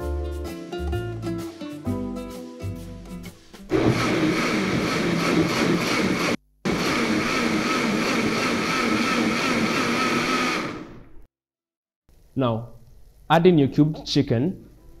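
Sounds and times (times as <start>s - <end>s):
electric blender running: 3.7s - 11.2s.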